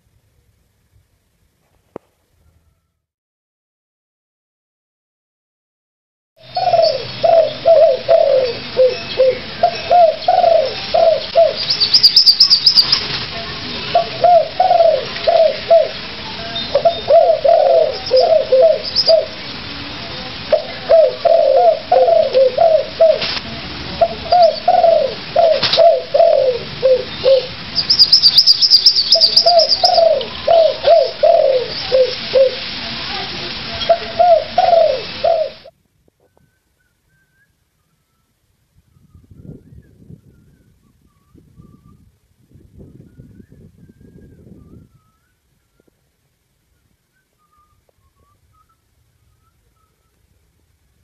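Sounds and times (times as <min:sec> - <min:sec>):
dove cooing: 0:06.4 - 0:13.0, 0:13.7 - 0:16.1, 0:16.7 - 0:19.4, 0:20.5 - 0:23.3, 0:24.0 - 0:32.7, 0:33.9 - 0:35.7
small bird trilling: 0:06.6 - 0:13.0, 0:24.3 - 0:32.6.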